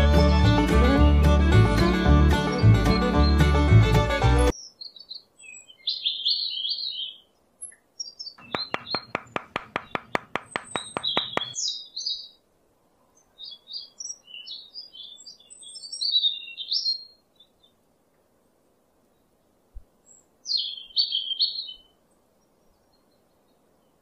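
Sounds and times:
small birds chirping: 4.5s - 12.4s, 13.1s - 17.8s, 20.0s - 24.0s
fast clicking taps: 8.4s - 11.6s.

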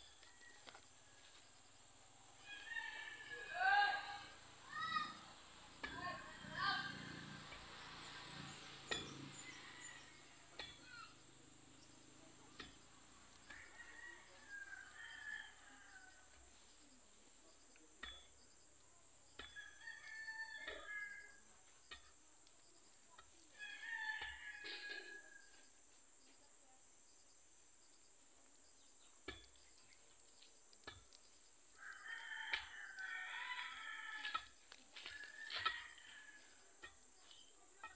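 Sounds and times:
rooster crowing: 2.4s - 5.2s, 9.3s - 11.1s, 13.4s - 16.4s, 19.6s - 21.4s, 23.5s - 25.6s, 31.8s - 36.6s.

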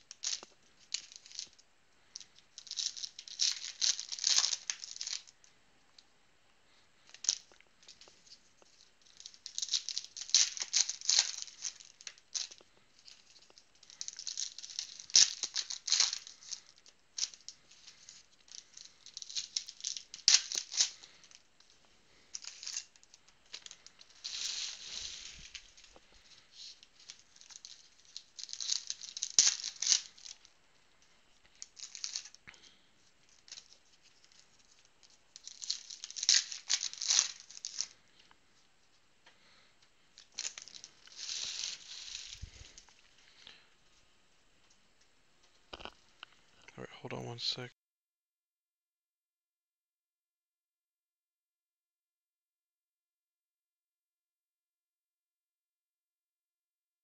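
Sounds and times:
foil wrappers crinkling and tearing: 0.0s - 1.6s, 2.2s - 5.4s, 7.1s - 38.3s, 39.3s - 43.7s.

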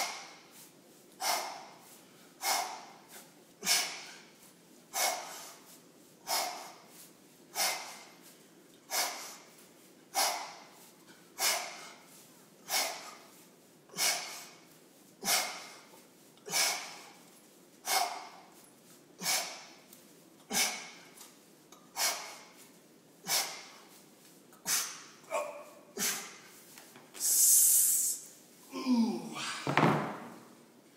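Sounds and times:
man blowing forceful breaths: 0.0s - 18.6s.

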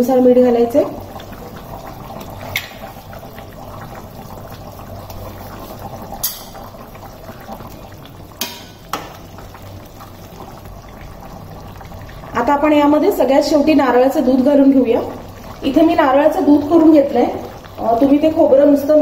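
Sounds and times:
curry bubbling in a pan: 0.0s - 19.0s
ladle clicking in pan: 6.1s - 6.7s, 8.4s - 9.2s.

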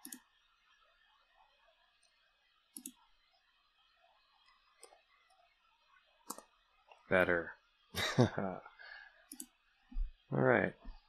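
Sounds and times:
computer mouse clicks: 0.0s - 0.3s, 2.0s - 3.0s, 4.4s - 5.4s, 6.2s - 7.0s, 9.3s - 9.6s.

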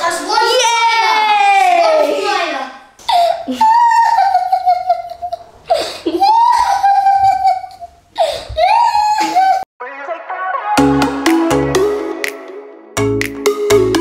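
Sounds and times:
children laughing and squealing: 0.7s - 9.7s.

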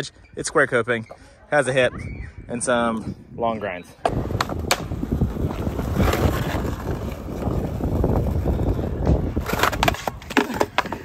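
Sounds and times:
wind buffeting microphone: 1.9s - 11.0s
skateboard wheels rolling on concrete: 3.7s - 11.0s.

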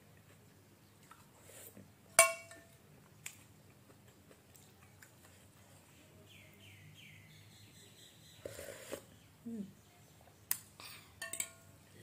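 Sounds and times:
spoon clinking glass bowl: 2.2s - 2.7s, 11.2s - 11.6s.

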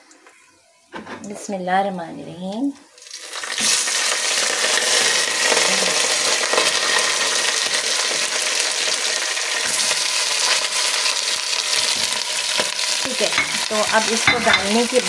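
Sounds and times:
meat sizzling in hot oil: 2.9s - 15.0s.

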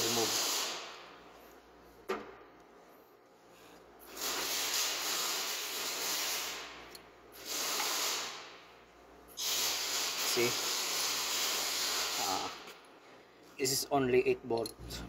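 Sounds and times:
compressed air hissing: 0.0s - 1.1s, 4.0s - 6.8s, 7.4s - 8.6s, 9.4s - 12.6s.

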